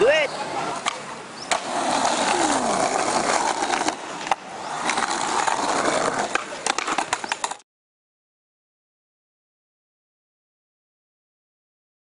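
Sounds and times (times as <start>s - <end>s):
skateboard wheels rolling on concrete: 0.0s - 7.6s
skateboard clacking on ground: 0.7s - 7.6s.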